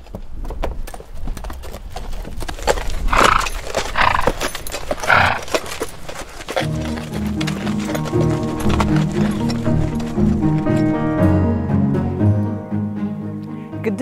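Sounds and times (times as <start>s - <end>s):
horse hooves on dirt: 0.0s - 11.9s
horse snorting: 2.6s - 11.0s
music: 6.5s - 14.0s.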